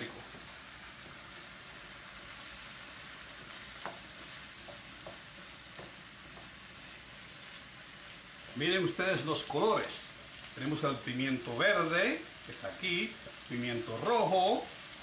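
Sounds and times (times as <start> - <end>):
peppers sizzling in a frying pan: 0.0 - 15.0
spatula tapping and scraping a pan: 3.3 - 7.6.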